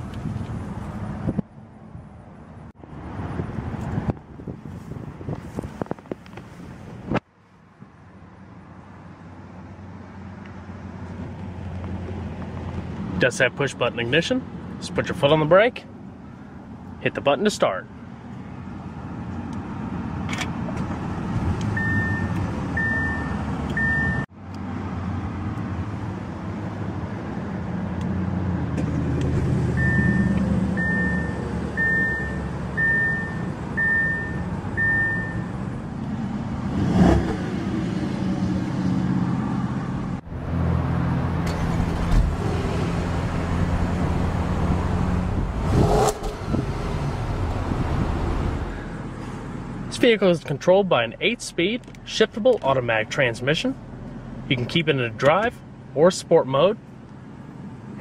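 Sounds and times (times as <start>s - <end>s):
short beeps: 21.8s - 24.2s, 29.8s - 35.5s.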